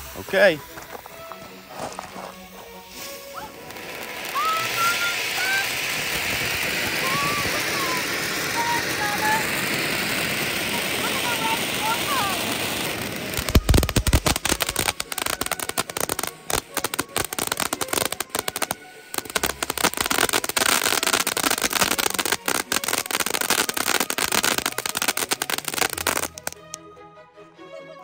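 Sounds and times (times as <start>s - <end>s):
fireworks crackling and popping: 0.0s - 26.8s.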